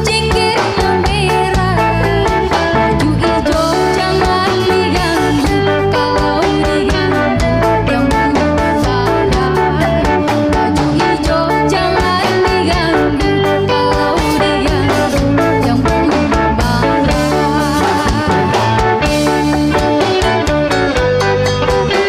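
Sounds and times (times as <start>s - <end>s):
woman singing: 0.0s - 19.9s
drum kit beat: 0.0s - 22.0s
electric guitar: 0.0s - 22.0s.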